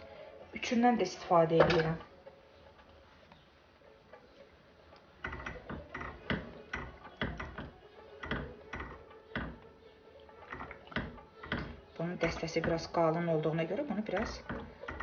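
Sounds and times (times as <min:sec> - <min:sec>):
spatula knocking steel pot: 0:14.0 - 0:15.0.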